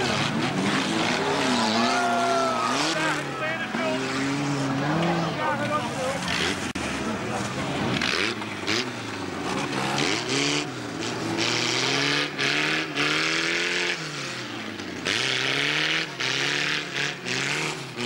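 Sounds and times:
car engines revving: 0.0 - 18.0
loud rasping exhaust: 0.0 - 18.0.

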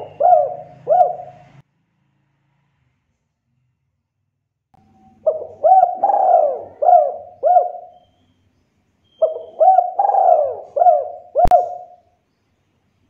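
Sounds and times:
dove cooing: 0.0 - 1.6, 5.2 - 8.1, 9.2 - 12.1.

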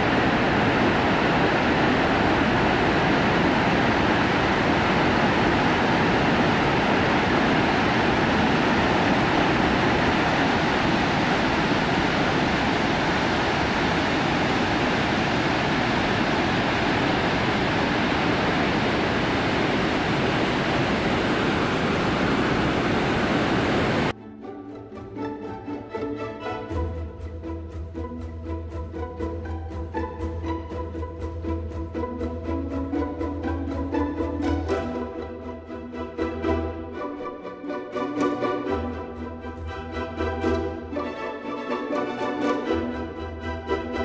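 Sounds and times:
waterfall rushing over rock: 0.0 - 24.1.

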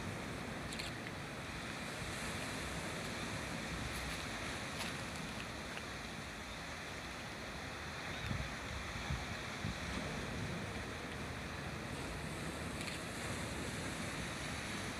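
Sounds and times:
ocean surf over rocks: 0.0 - 14.9
wind buffeting microphone: 8.1 - 14.9.

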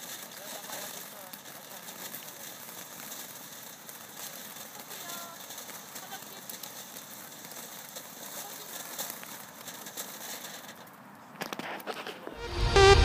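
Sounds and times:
firework sparks hissing and crackling: 0.0 - 13.0
electronic music: 12.4 - 13.0.

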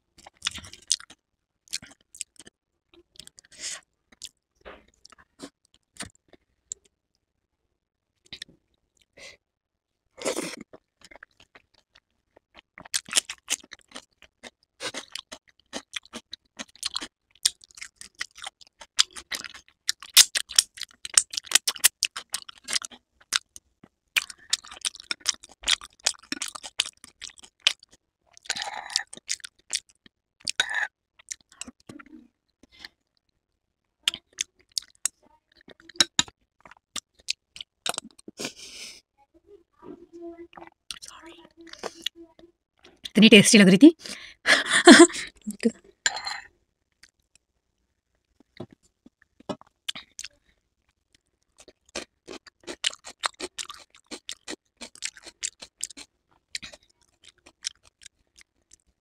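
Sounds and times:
crunchy food chewing: 0.2 - 6.8, 10.2 - 33.0, 34.0 - 38.6, 48.2 - 59.0
wet chewing: 10.3 - 23.6, 24.2 - 32.1, 34.1 - 38.5, 51.5 - 58.9.

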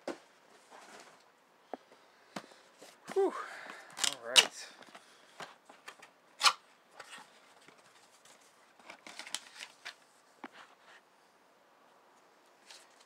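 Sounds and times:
paper and cardboard rustling: 7.0 - 11.0, 12.6 - 13.0.

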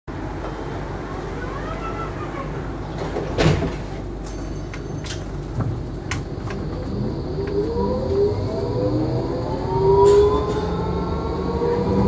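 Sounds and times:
tram rumbling: 0.1 - 12.0
tram motor whine: 4.2 - 12.0.

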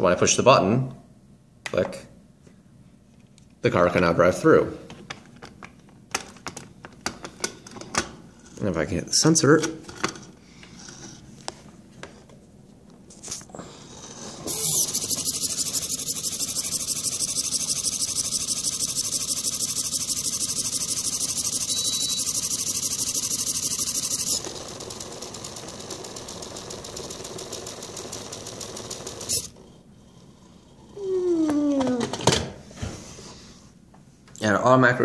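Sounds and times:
small electric motors whirring: 14.1 - 29.6.

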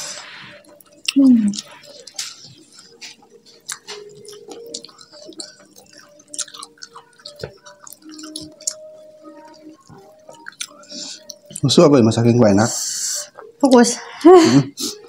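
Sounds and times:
wet chewing: 0.6 - 11.8.

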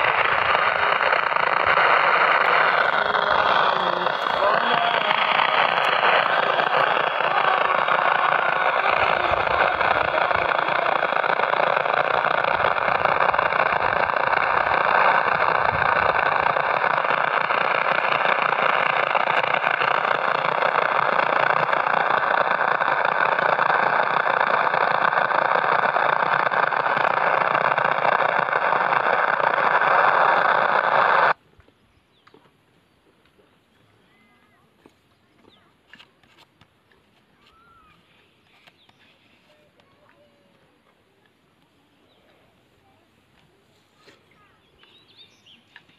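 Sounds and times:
radio static hiss: 0.0 - 31.4
faint thin whistle: 37.4 - 39.7.

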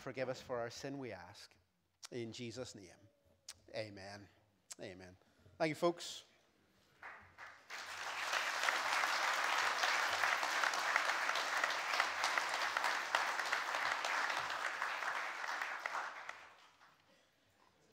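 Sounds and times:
crowd clapping: 7.0 - 17.1.

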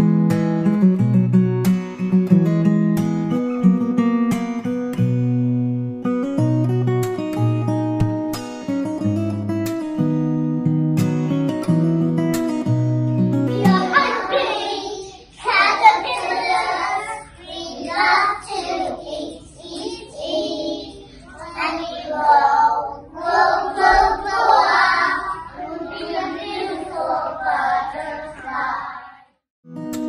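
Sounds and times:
children singing: 13.5 - 29.3.

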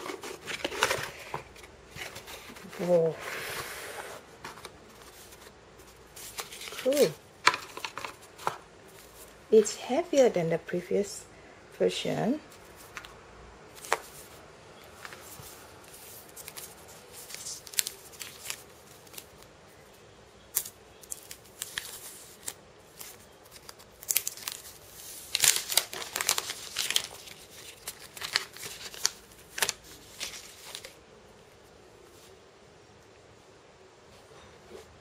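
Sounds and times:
plastic film crinkling: 4.5 - 9.8, 15.0 - 19.5, 20.5 - 31.0.

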